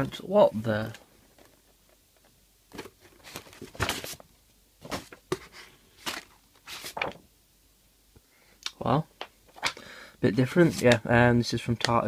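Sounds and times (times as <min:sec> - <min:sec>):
paper sheets rustling: 0:02.8 - 0:04.2, 0:04.8 - 0:07.2.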